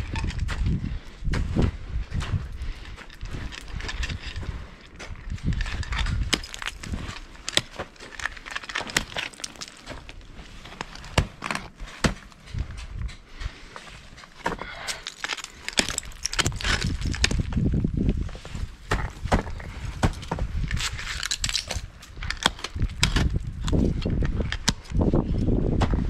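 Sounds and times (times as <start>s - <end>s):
ice chipping crunch: 2.6s - 12.6s, 14.2s - 25.0s
ice axe strikes on ice: 6.0s - 10.2s, 14.4s - 17.6s.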